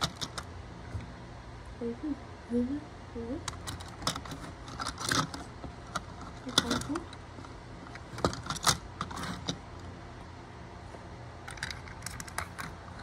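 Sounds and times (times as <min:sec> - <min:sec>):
plastic toy trains clicking: 0:00.0 - 0:00.5, 0:03.5 - 0:07.2, 0:07.9 - 0:09.6, 0:11.4 - 0:13.0.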